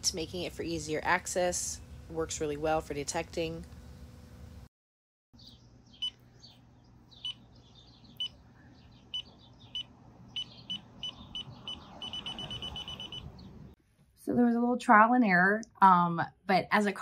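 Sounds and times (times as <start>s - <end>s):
high alert beeps: 9.2s - 13.3s
car road noise: 9.8s - 13.8s.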